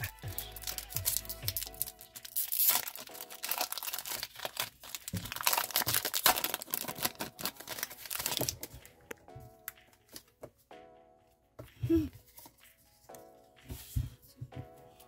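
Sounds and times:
foil wrapper tearing and crinkling: 0.0 - 8.8.

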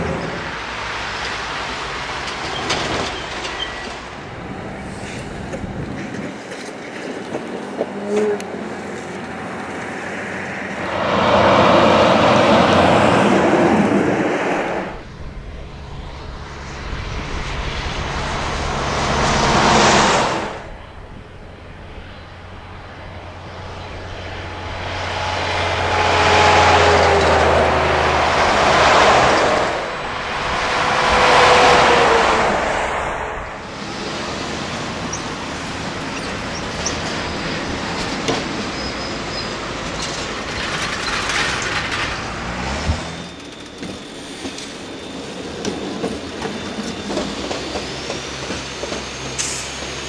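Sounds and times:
trucks passing on highway: 0.0 - 50.0
low engine drone: 8.2 - 38.1.

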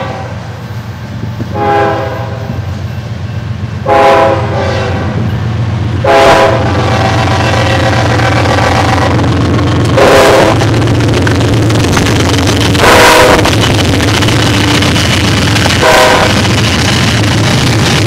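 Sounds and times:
locomotive air horn: 0.0 - 0.4, 1.5 - 2.5, 3.8 - 5.2, 6.0 - 9.2, 10.0 - 10.6, 12.8 - 13.6, 15.8 - 16.5
freight train rumble: 0.0 - 18.0.

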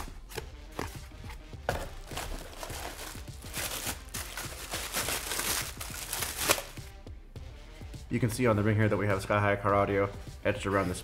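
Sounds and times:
background music: 0.0 - 11.0
cardboard rustling: 0.8 - 6.6
plastic bag crinkling: 2.0 - 6.6.

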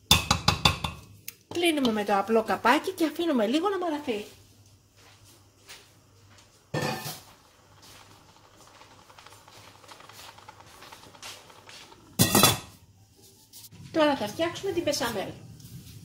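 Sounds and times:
steel cookware clanking: 6.7 - 7.5, 12.0 - 12.8.

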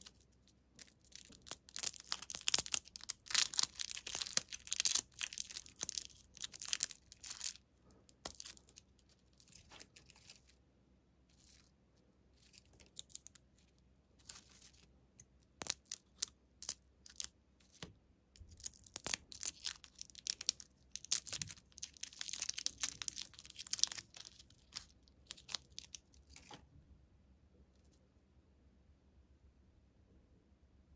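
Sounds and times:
plastic wrappers crinkling: 0.0 - 10.5, 14.2 - 17.8, 18.4 - 26.6.

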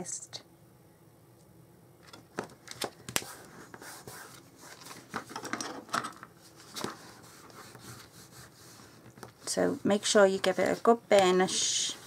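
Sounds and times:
paper rustling: 2.4 - 5.5, 6.4 - 8.1.

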